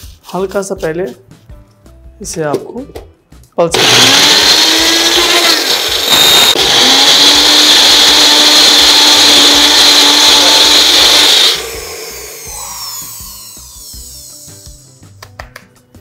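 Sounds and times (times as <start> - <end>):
mixer grinder motor running: 3.7 - 14.8.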